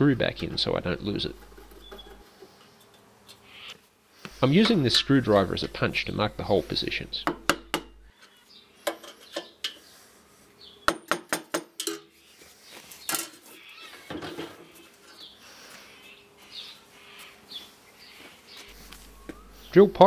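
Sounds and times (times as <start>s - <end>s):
scraping and handling: 0.2s - 2.5s.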